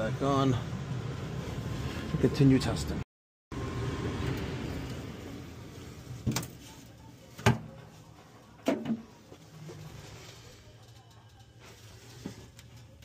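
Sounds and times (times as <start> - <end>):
gas furnace humming: 3.5 - 13.0.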